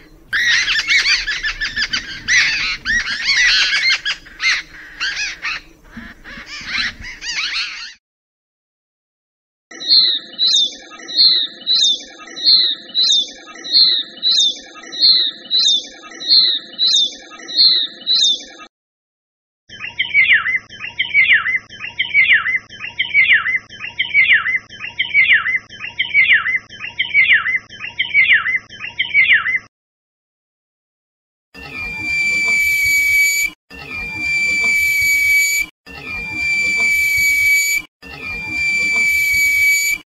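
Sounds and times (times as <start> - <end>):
bird calling in quick phrases: 0.0 - 8.0, 19.7 - 29.7.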